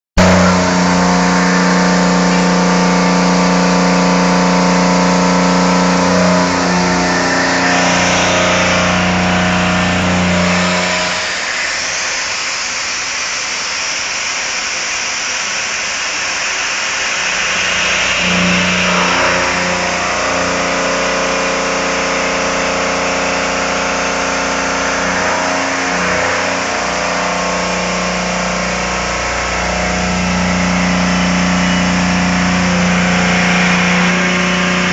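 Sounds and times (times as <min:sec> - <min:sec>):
milling machine humming and whining: 0:00.2 - 0:34.9.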